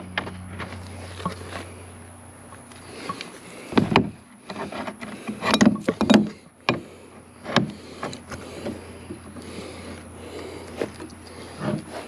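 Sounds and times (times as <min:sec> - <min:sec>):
metal hardware clicks and clunks: 0:03.8 - 0:06.8.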